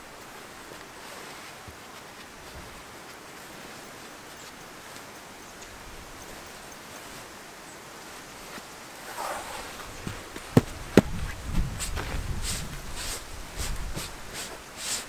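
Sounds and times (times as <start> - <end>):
tent fabric rustling: 0.0 - 15.0
footstep thuds: 9.5 - 12.2.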